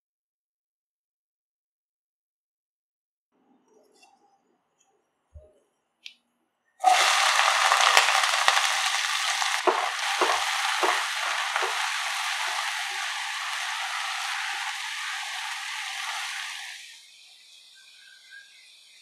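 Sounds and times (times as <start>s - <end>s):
spatula stirring onions: 6.8s - 16.9s
onions sizzling in hot oil: 6.8s - 19.0s.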